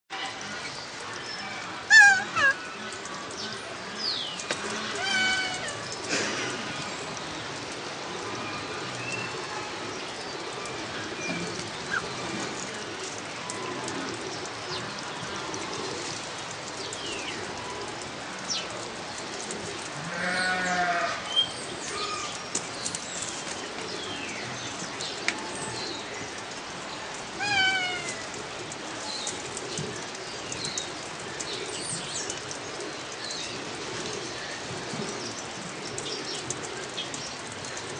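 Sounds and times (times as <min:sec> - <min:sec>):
parrot bleat-like call: 0:05.0 - 0:05.8, 0:27.4 - 0:28.2.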